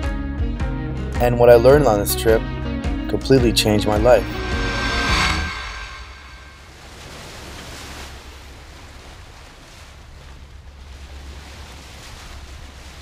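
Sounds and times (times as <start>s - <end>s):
ocean waves washing: 3.1s - 13.0s
low rumble: 3.2s - 7.2s.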